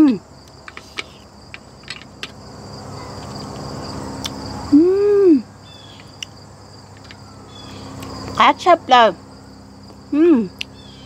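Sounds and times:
crickets chirping: 0:00.0 - 0:11.0
woman humming mmm while eating: 0:04.7 - 0:05.5.

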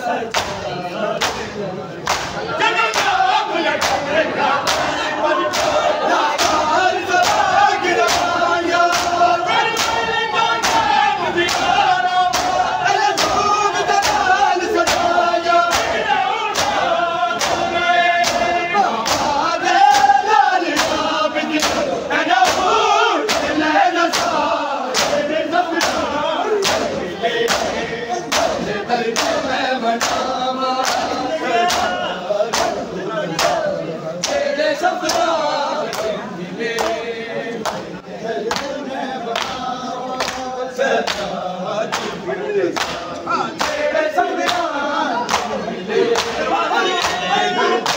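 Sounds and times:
crowd chanting: 0:00.0 - 0:47.9
hands slapping chests: 0:00.3 - 0:00.6, 0:01.2 - 0:03.2, 0:03.8 - 0:04.9, 0:10.6 - 0:12.6, 0:15.7 - 0:16.0, 0:16.6 - 0:16.8, 0:17.4 - 0:22.7, 0:23.3 - 0:25.2, 0:25.8 - 0:26.0, 0:26.6 - 0:29.4, 0:30.0 - 0:32.8, 0:40.2 - 0:41.3, 0:41.9 - 0:43.8, 0:45.3 - 0:46.4, 0:47.0 - 0:47.2.

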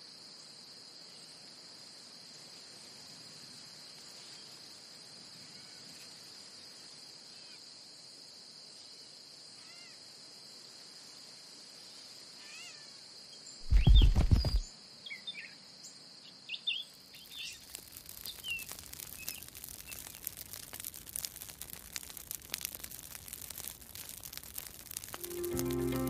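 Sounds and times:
bird chirps: 0:13.6 - 0:15.6
high insect drone: 0:25.2 - 0:26.0.

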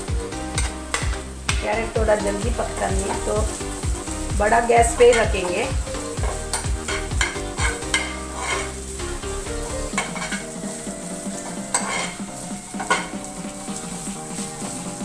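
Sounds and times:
carrots sizzling in oil: 0:00.0 - 0:15.0
spoon scraping pan: 0:02.6 - 0:09.0, 0:09.6 - 0:15.0.

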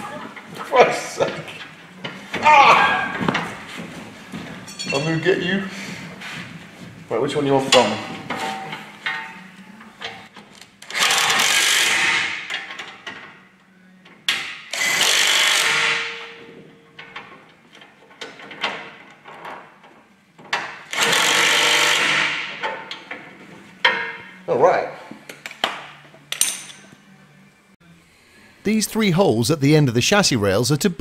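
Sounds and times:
impact wrench hammering: 0:10.9 - 0:12.9, 0:14.3 - 0:16.6, 0:20.9 - 0:22.9.

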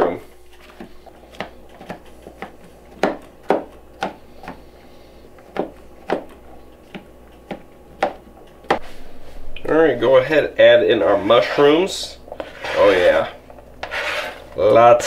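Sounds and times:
knife chopping on cutting board: 0:00.5 - 0:04.7, 0:05.4 - 0:08.8.

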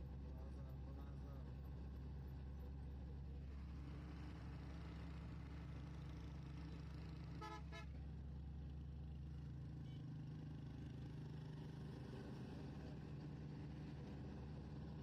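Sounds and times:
low rumble of moving vehicle: 0:00.0 - 0:15.0
vehicle horn toots: 0:07.4 - 0:07.9.

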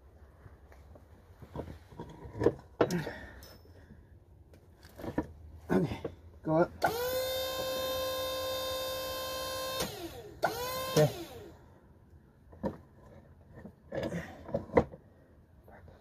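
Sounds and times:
small electric motor whining: 0:06.8 - 0:11.6.

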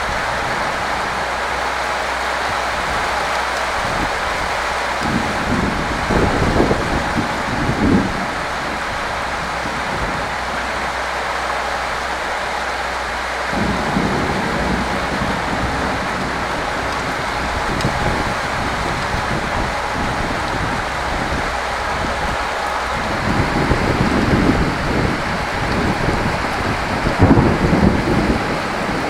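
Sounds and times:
steady rain falling: 0:00.0 - 0:29.0
low rumble: 0:13.2 - 0:29.0.

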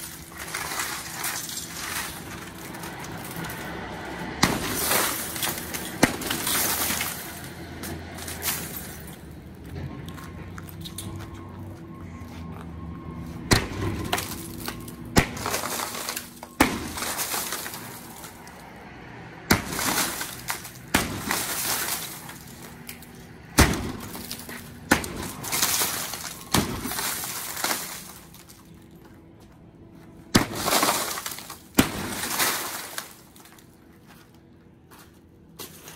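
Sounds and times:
glass shattering: 0:00.0 - 0:03.6, 0:04.4 - 0:07.6, 0:08.2 - 0:09.2, 0:13.5 - 0:18.6, 0:19.5 - 0:28.7, 0:30.4 - 0:33.6.

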